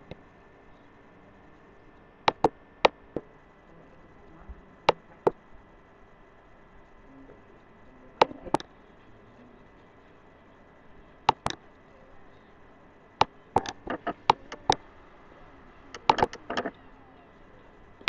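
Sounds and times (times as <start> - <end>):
sharp clicks: 2.2 - 3.3, 11.2 - 11.8, 13.2 - 14.9, 15.9 - 16.8.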